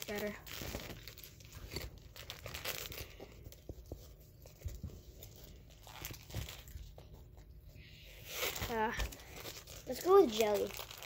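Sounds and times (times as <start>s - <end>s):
candy wrapper tearing and crinkling: 0.0s - 3.6s, 5.2s - 7.1s, 8.2s - 11.0s.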